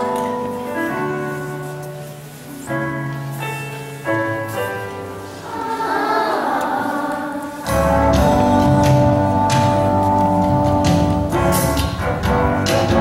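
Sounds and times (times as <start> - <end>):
keyboard chords: 0.0 - 13.0
children's choir singing: 5.3 - 9.4
fuller accompaniment with bass: 7.6 - 13.0.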